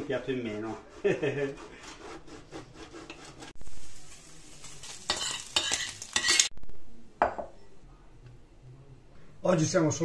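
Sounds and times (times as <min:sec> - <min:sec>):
utensil stirring and scraping pan: 0:00.0 - 0:06.5
pork sizzling in a pan: 0:03.6 - 0:06.6.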